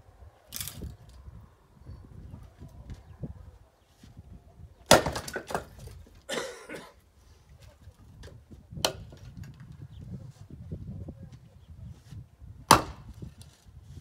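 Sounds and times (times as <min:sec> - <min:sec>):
axe striking log: 0:04.9 - 0:05.7, 0:08.8 - 0:09.2, 0:12.7 - 0:13.2
firewood clattering onto pile: 0:04.9 - 0:06.3
knock of wood on wood: 0:12.7 - 0:13.0.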